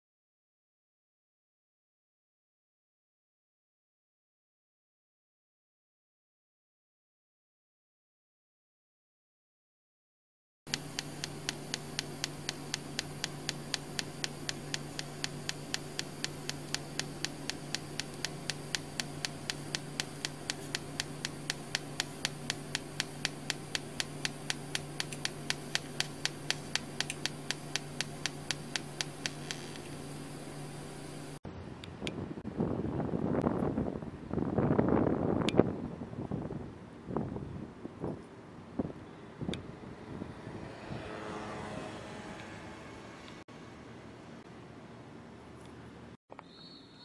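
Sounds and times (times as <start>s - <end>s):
welding arc buzzing with ticks: 10.7s - 31.4s.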